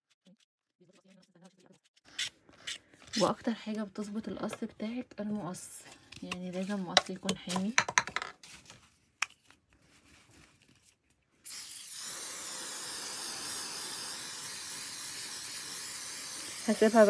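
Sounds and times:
aerosol spray hissing: 0:11.5 - 0:17.0.

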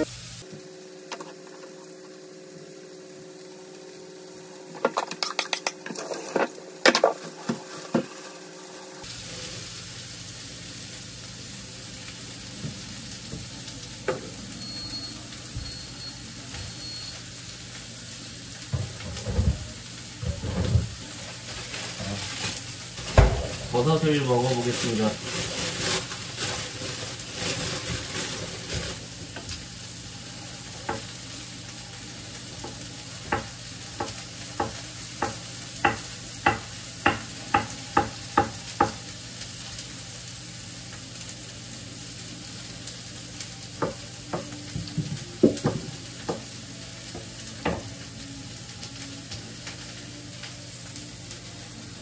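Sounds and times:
food sizzling in a pan: 0:00.0 - 0:52.0
plastic bag rustling: 0:19.2 - 0:29.6.

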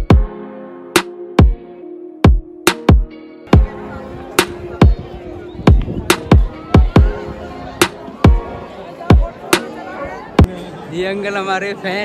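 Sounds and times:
electronic music with booming kick: 0:00.0 - 0:00.3, 0:01.0 - 0:01.6, 0:02.2 - 0:03.7, 0:05.6 - 0:07.2.

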